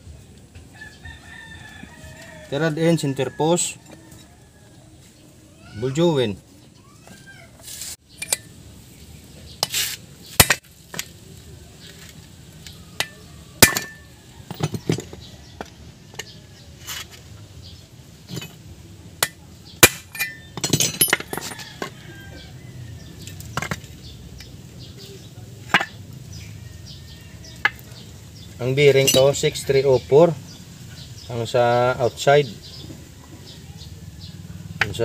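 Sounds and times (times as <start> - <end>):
metal tools clinking and knocking: 8.1 - 8.6, 13.0 - 17.1, 18.2 - 18.6, 19.2 - 22.3, 23.6 - 23.9, 25.7 - 26.0, 28.8 - 29.8
rattling clinks: 20.0 - 21.9, 29.0 - 29.5.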